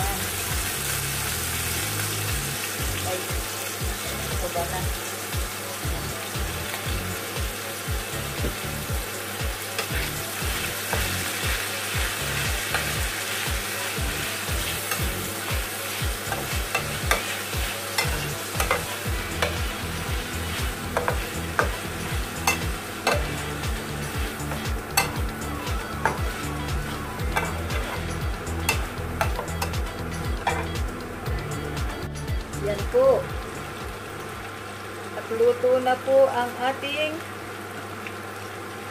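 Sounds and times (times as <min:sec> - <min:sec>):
food sizzling in frying pan: 0:00.0 - 0:38.9
low regular beat: 0:04.9 - 0:34.0
spatula scraping and tapping pan: 0:16.3 - 0:19.6, 0:20.9 - 0:21.8, 0:22.4 - 0:23.4, 0:24.4 - 0:25.2, 0:27.3 - 0:28.1.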